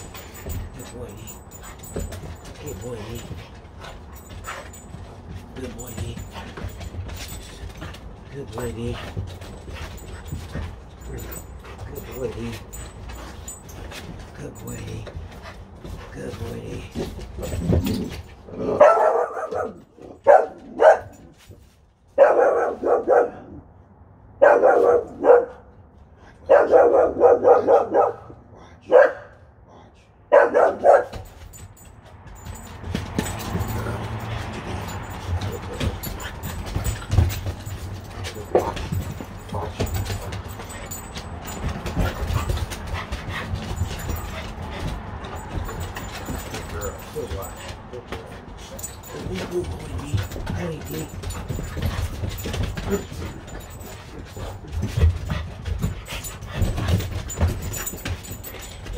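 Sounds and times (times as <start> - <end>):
dogs panting: 0.0 - 20.9, 30.4 - 58.9
dogs moving on wooden deck: 0.0 - 23.2, 30.4 - 58.9
dog barking: 18.6 - 21.2, 22.2 - 23.6, 24.4 - 25.7, 26.5 - 29.4, 30.3 - 31.2
scuffling rumble: 31.0 - 58.9.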